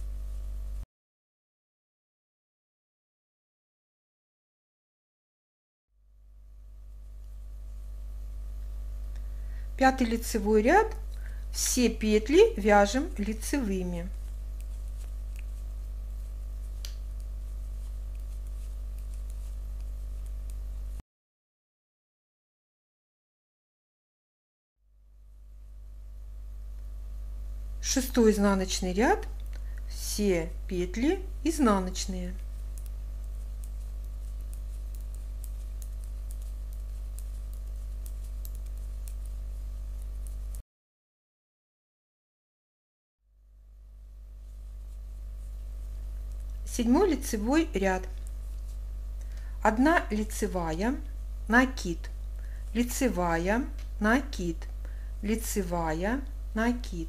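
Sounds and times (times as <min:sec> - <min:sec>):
steady low hum: 0:00.0 - 0:00.8, 0:06.1 - 0:21.0, 0:25.1 - 0:40.6, 0:43.4 - 0:57.0
knitting needles clicking: 0:14.1 - 0:15.6, 0:16.7 - 0:20.6, 0:32.3 - 0:40.6.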